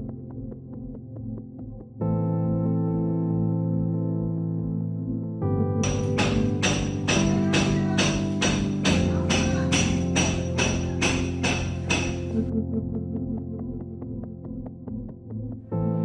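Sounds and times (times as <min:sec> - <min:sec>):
synthesizer chords: 0:00.0 - 0:16.0
bright percussion hits: 0:05.8 - 0:12.5.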